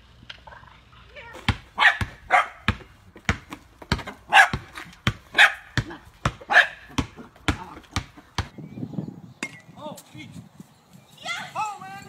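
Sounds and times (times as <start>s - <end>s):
basketball bouncing on asphalt: 1.2s - 8.6s
small dog barking: 1.8s - 2.7s, 4.3s - 4.7s, 5.3s - 5.7s, 6.5s - 6.9s.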